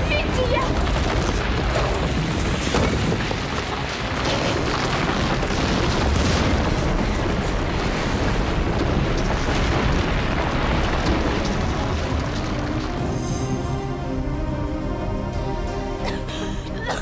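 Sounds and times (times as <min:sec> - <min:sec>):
rumbling roar of rock collapsing: 0:00.0 - 0:15.5
music: 0:11.2 - 0:17.0.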